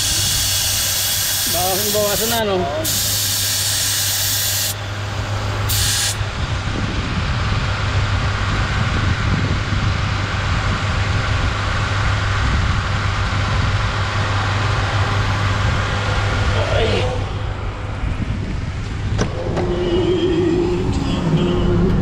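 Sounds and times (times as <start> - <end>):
air hissing out of a tyre: 0.0 - 6.4
steady low hum: 0.0 - 22.0.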